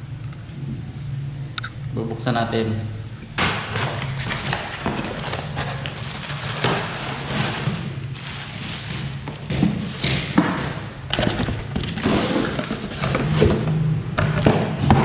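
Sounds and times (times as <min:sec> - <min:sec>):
box thumps: 0:03.4 - 0:07.9, 0:08.9 - 0:15.0
cardboard flaps scraping and rustling: 0:03.4 - 0:10.3, 0:11.1 - 0:13.7
plastic wrapping crinkling: 0:03.5 - 0:10.0.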